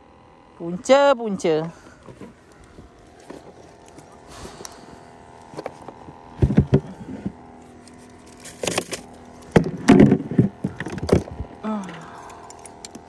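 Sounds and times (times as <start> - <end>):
faint steady hum: 0.0 - 13.0
knocks and clatters in inflatable boat: 8.6 - 11.5.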